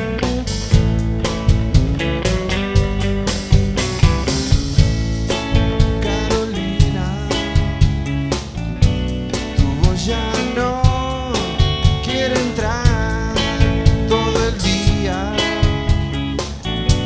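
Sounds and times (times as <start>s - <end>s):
rock band playing live: 0.0s - 17.0s.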